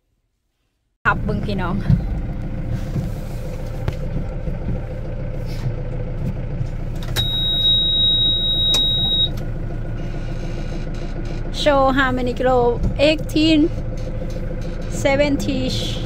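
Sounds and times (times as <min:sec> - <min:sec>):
tractor diesel engine running: 0:01.1 - 0:16.0
high electronic beep: 0:07.2 - 0:09.3.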